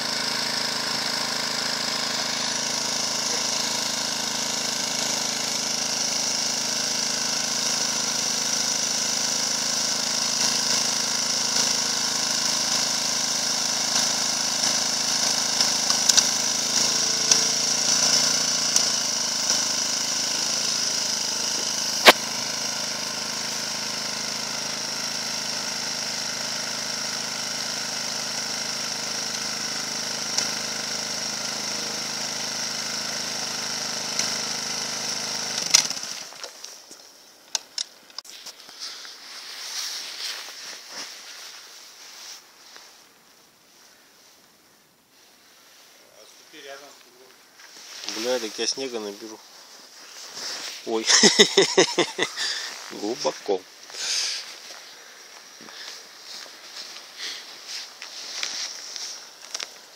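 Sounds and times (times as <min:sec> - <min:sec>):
motorcycle engine idling: 0:00.0 - 0:37.4
sharp click: 0:16.1 - 0:16.3.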